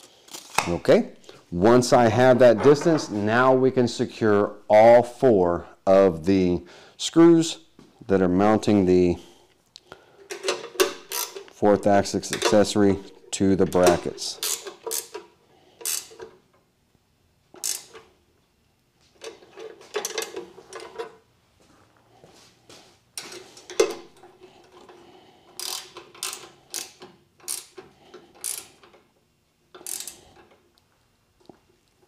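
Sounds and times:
metallic clicking of hand tool: 0:25.6 - 0:27.8, 0:28.4 - 0:29.0, 0:29.8 - 0:30.5.

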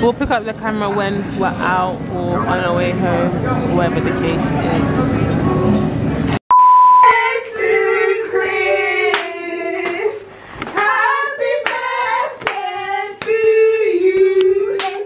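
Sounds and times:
high-pitched voices singing: 0:07.0 - 0:15.0
hands clapping rhythmically: 0:09.1 - 0:13.5, 0:14.2 - 0:15.0.

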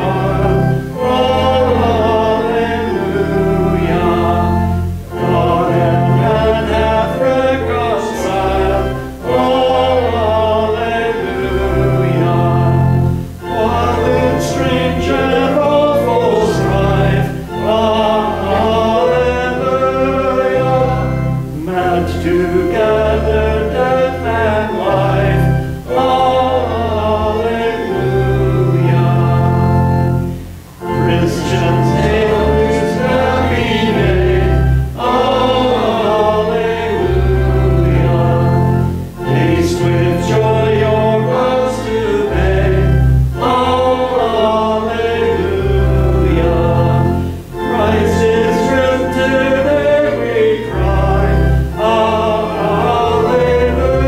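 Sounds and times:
group singing a church song: 0:00.0 - 0:54.0
low accompaniment notes: 0:00.0 - 0:54.0.

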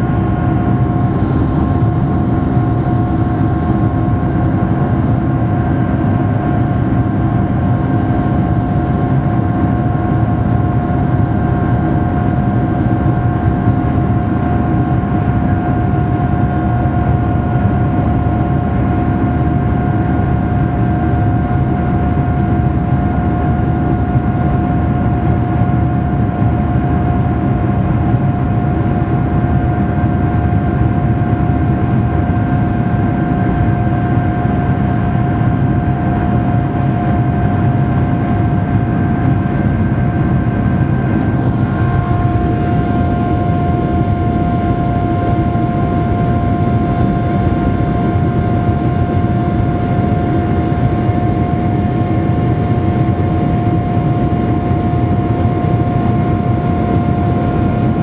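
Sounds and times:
airflow and engine rush: 0:00.0 - 0:58.0
steady whining tones: 0:29.0 - 0:58.0.

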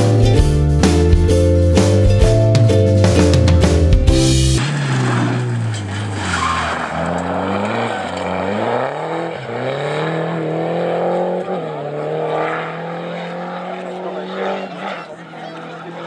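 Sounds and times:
rally car engine revving: 0:03.1 - 0:16.0
tyres sliding on gravel: 0:04.4 - 0:10.0.

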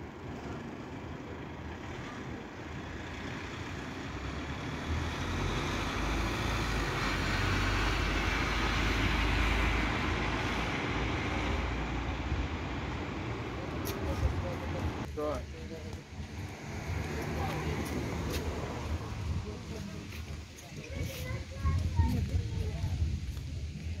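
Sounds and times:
street background noise: 0:00.0 - 0:24.0
vehicle driving past: 0:01.4 - 0:13.7, 0:16.2 - 0:20.0.

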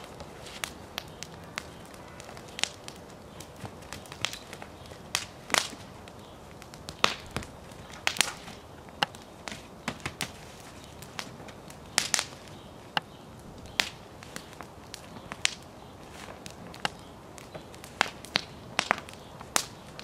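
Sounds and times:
low steady fire hiss: 0:00.0 - 0:20.0
wood fire crackling and popping: 0:00.0 - 0:20.0.

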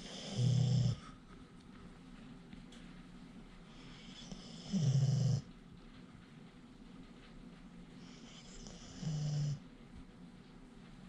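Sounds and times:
dog snoring: 0:00.0 - 0:01.2, 0:03.7 - 0:05.5, 0:08.0 - 0:09.6.

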